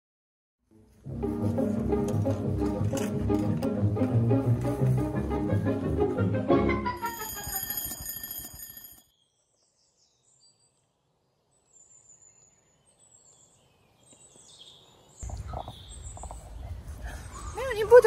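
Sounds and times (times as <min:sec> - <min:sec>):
chime-like music: 0:06.7 - 0:08.9
birds chirping: 0:09.1 - 0:18.0.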